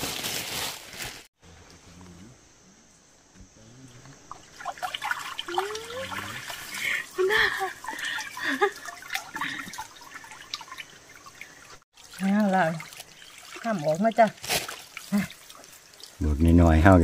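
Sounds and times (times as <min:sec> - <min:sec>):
water sloshing and trickling: 0:04.0 - 0:17.0.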